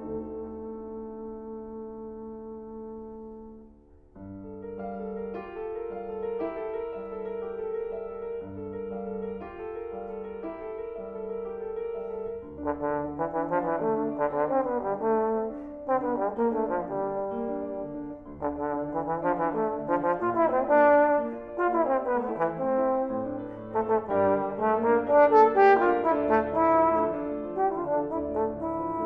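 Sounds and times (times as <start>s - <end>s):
trombone melody: 0.0s - 3.7s, 12.4s - 29.0s
grand piano: 0.0s - 29.0s.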